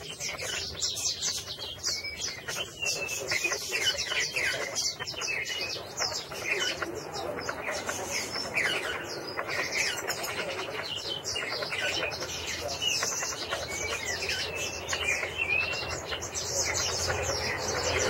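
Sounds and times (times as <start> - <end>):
songbird twittering: 0.0 - 18.0.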